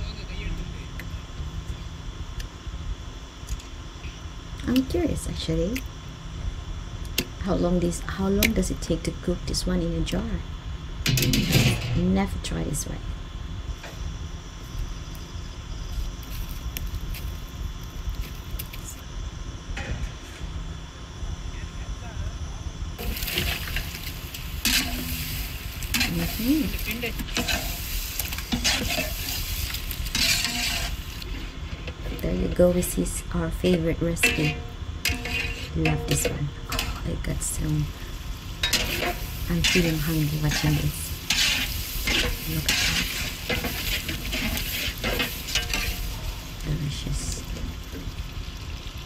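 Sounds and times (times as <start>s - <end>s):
spoon scraping a pan: 23.0s - 32.2s, 33.7s - 37.0s, 38.6s - 46.3s
chicken sizzling in pot: 23.0s - 49.0s
spoon scraping pot: 30.1s - 31.4s, 34.2s - 37.0s.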